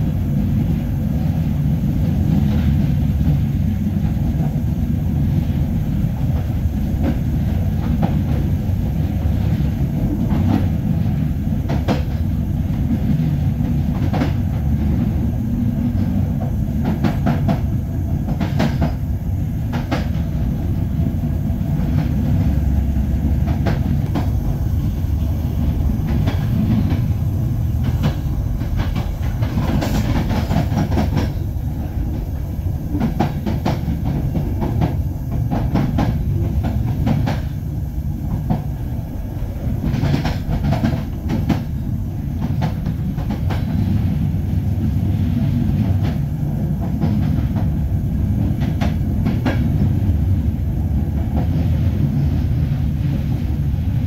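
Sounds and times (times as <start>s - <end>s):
train rumbling on track: 0.0s - 54.0s
train wheel clicks: 6.2s - 20.7s, 21.7s - 37.6s, 38.2s - 45.1s, 48.4s - 50.0s.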